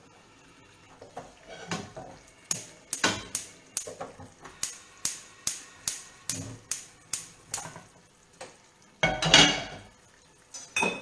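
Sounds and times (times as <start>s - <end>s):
gas hob igniter clicking: 2.5s - 7.8s.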